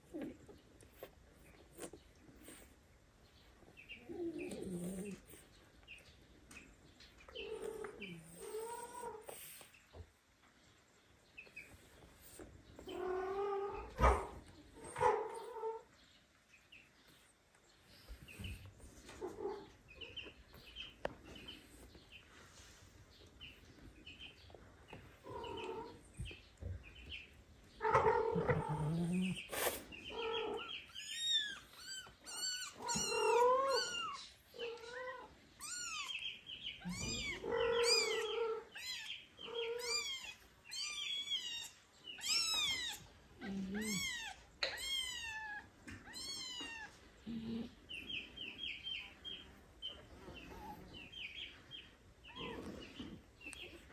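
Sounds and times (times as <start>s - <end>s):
adult cat meowing: 30.2s - 36.2s, 36.8s - 47.0s
kitten meowing: 30.9s - 34.2s, 34.8s - 36.2s, 36.8s - 43.0s, 43.8s - 46.9s.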